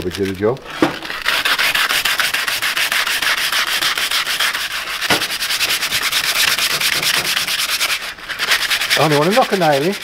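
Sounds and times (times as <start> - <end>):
sandpaper scratching on wood: 1.0 - 10.0
small knock: 5.1 - 5.3.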